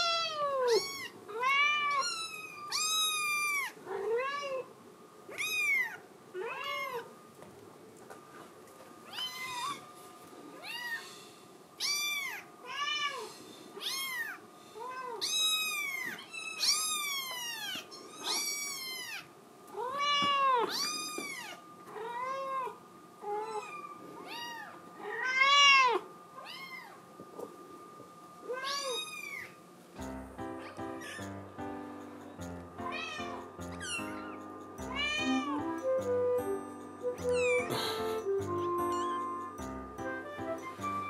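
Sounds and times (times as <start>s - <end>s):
kitten meowing: 0.0s - 4.6s, 5.3s - 7.0s, 11.8s - 13.2s, 15.0s - 22.7s, 23.3s - 27.0s, 34.9s - 35.5s, 37.2s - 38.0s, 38.8s - 39.3s.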